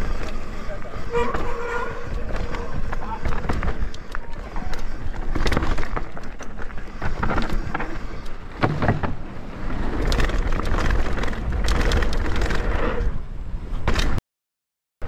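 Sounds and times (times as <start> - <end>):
bike rattling and knocking: 0.0 - 12.8
tyres running over dirt: 0.0 - 13.2
wind rumbling on microphone: 0.0 - 14.2.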